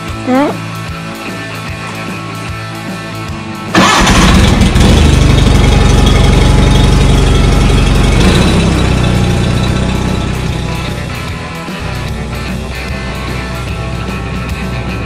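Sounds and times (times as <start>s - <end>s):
garden tractor engine starting: 3.7s - 11.1s.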